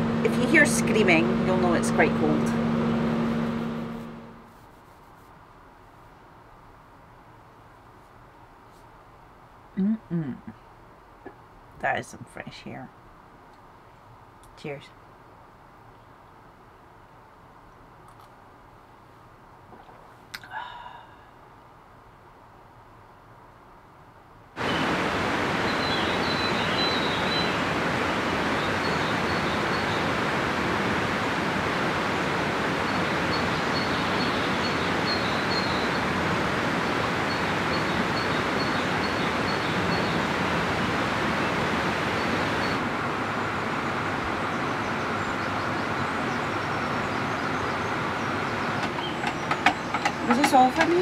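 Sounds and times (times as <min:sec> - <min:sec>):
steady rushing noise: 0:00.0 - 0:04.8, 0:24.6 - 0:51.0
faint high bird chirps: 0:25.7 - 0:27.6, 0:32.9 - 0:36.0.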